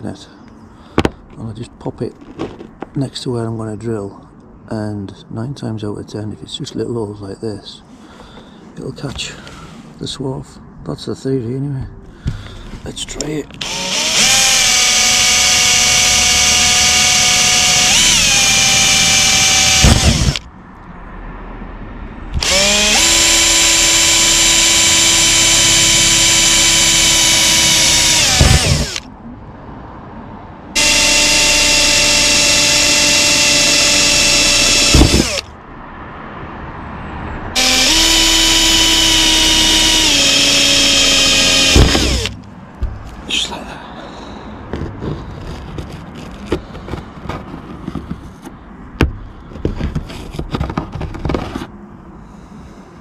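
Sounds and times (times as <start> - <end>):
cordless drill drilling metal: 13.6 - 20.4, 22.4 - 29.1, 30.8 - 35.5, 37.6 - 42.4.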